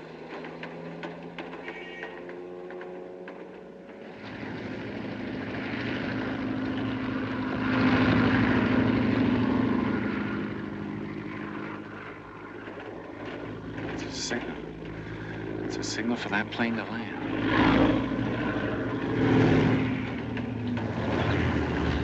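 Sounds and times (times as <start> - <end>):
propeller airplane flying overhead: 0.0 - 22.0.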